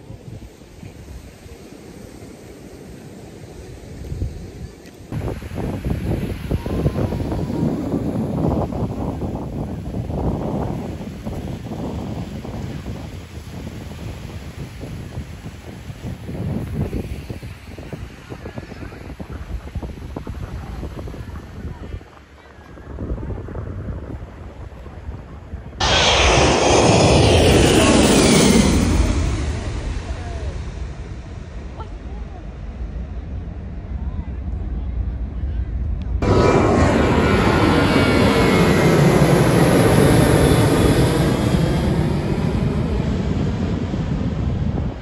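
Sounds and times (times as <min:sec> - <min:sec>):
jet airliner roar: 0:00.0 - 0:15.7, 0:25.6 - 0:45.0
low rumble: 0:25.6 - 0:45.0.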